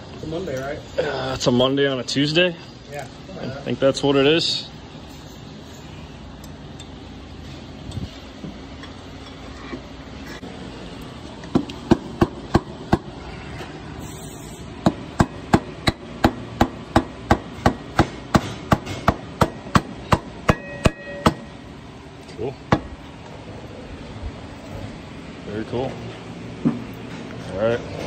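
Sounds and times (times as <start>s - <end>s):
hammer tapping on metal: 14.8s - 21.5s.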